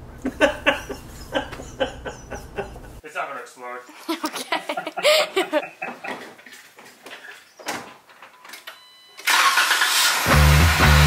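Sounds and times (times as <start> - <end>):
voice: 3.0 - 5.6.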